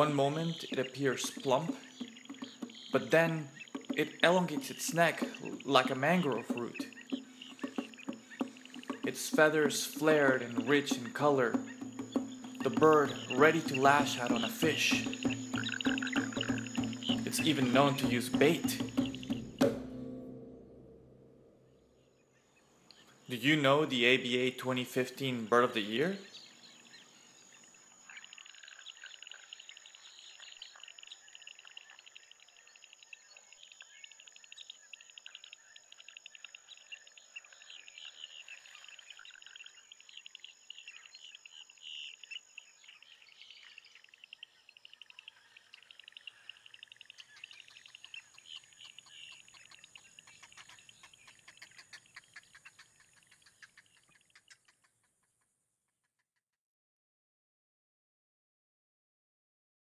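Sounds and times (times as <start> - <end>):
small birds chirping: 0.0 - 19.9, 21.8 - 56.3
high insect drone: 0.4 - 19.9.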